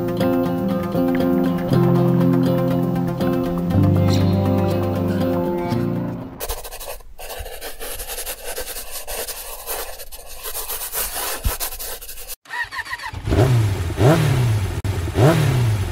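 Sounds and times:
motorcycle engine revving: 12.5 - 15.9.

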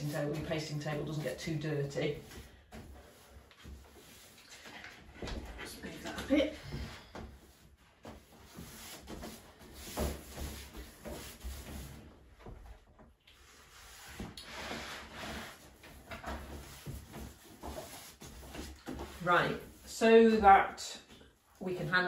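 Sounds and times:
brush swishing paste: 0.0 - 4.7, 7.4 - 12.0.

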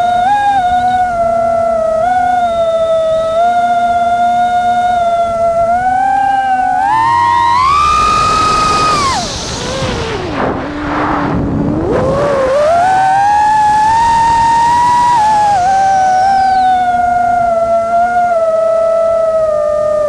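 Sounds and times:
drone motors whining: 0.0 - 20.0
rush of air: 6.8 - 17.6.

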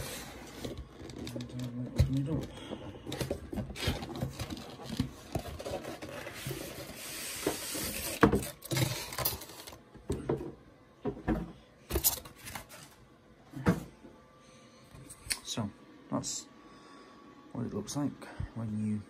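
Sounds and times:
cardboard packaging rubbing: 3.4 - 9.8.

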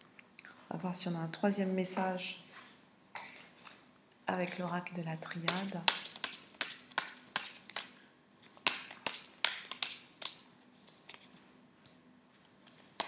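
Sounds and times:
cards being shuffled: 4.4 - 11.4.

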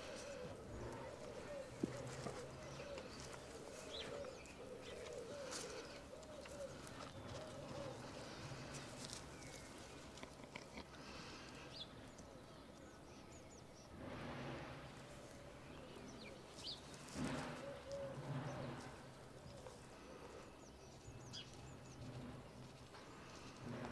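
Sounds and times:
alpacas humming: 0.0 - 11.8.

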